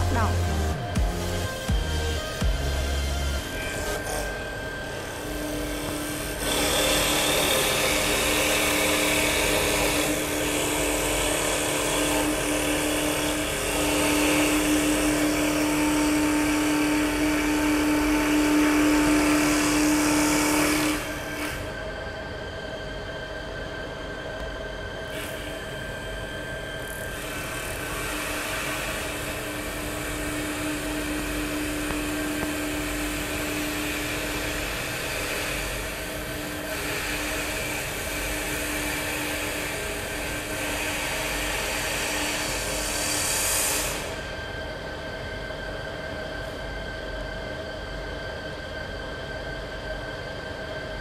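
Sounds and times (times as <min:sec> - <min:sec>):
lathe cutters shaving wood: 0:00.0 - 0:21.7, 0:25.2 - 0:44.2
machine motors humming: 0:00.0 - 0:44.3.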